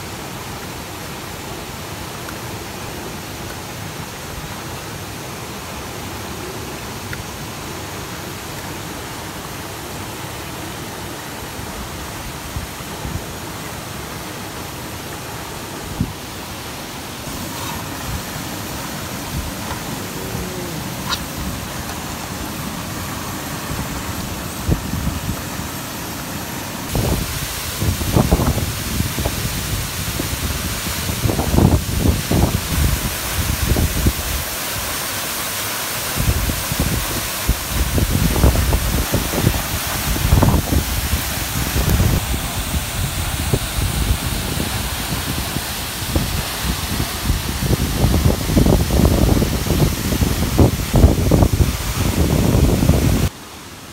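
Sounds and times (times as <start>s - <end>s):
waterfall and stream rushing: 0.0s - 53.9s
wind buffeting microphone: 36.2s - 53.3s.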